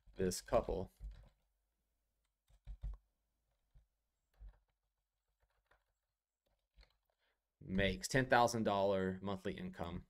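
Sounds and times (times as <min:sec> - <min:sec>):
faint keyboard keystrokes: 0:02.4 - 0:03.0.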